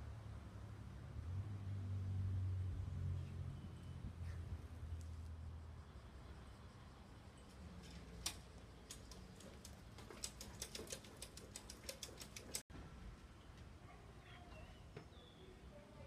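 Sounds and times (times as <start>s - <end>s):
light sharp ticks: 7.8s - 12.6s.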